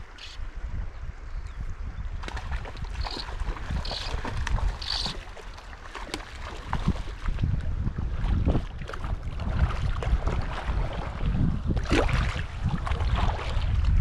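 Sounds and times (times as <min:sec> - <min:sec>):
wind buffeting microphone: 0:00.0 - 0:14.0
stream running over rocks: 0:02.2 - 0:07.2.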